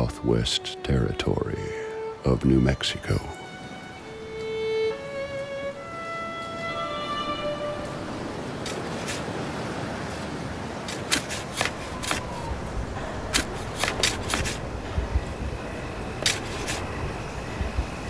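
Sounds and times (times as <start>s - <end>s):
violin notes: 0.0s - 8.6s
steady wind-like hiss: 0.0s - 18.0s.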